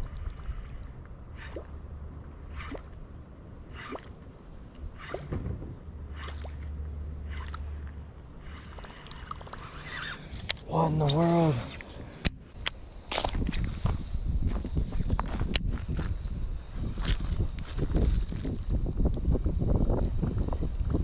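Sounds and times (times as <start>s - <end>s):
low wind rumble: 0.0s - 21.0s
lure splashing on water: 2.4s - 3.0s, 3.7s - 4.2s, 6.1s - 11.9s.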